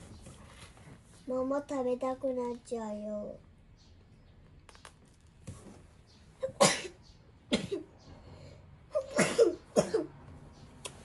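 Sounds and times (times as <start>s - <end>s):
person coughing: 6.4s - 7.9s, 9.0s - 10.1s.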